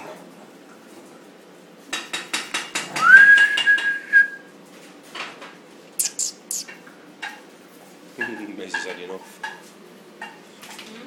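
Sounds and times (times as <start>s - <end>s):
person whistling a sliding note: 3.0s - 4.4s
sharp clicks: 6.0s - 6.7s
very high squeaks: 6.0s - 6.7s.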